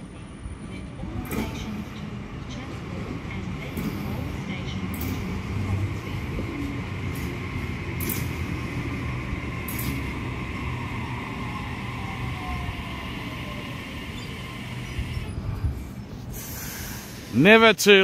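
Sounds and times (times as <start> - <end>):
train wheels rumbling on rail: 0.0 - 17.9
short hisses: 16.2 - 17.4.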